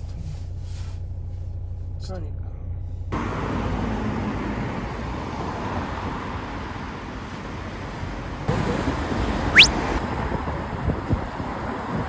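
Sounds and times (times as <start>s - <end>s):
road traffic: 2.6s - 12.0s
high tone sweeping down: 9.5s - 10.0s.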